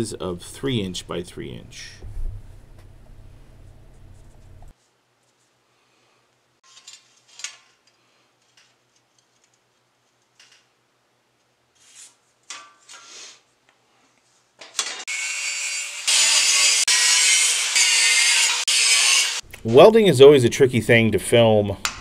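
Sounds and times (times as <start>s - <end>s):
angle grinder cutting steel: 14.9s - 19.4s.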